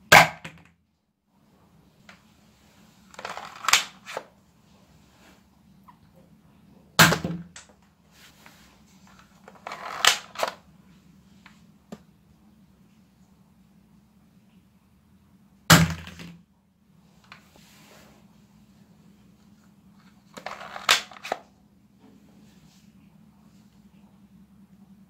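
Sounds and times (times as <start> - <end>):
plastic slide racking: 3.1 - 4.3, 9.5 - 10.6, 20.3 - 21.5.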